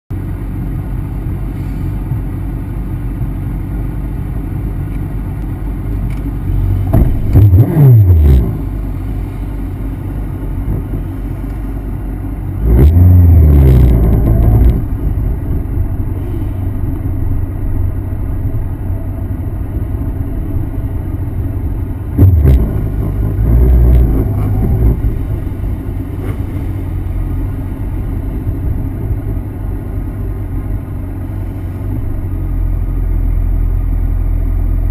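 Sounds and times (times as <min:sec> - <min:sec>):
motorcycle engine revving: 0:06.7 - 0:08.8, 0:12.6 - 0:15.7, 0:22.1 - 0:26.8.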